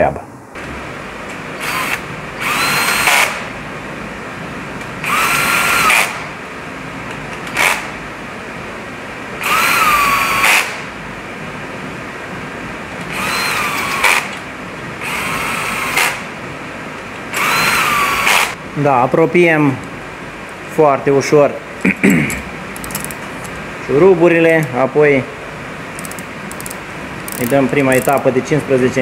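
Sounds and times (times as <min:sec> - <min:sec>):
cordless drill whining: 0:01.6 - 0:03.5, 0:05.0 - 0:06.3, 0:09.4 - 0:10.9, 0:13.1 - 0:14.4, 0:15.0 - 0:16.2, 0:17.3 - 0:18.6, 0:26.0 - 0:28.2.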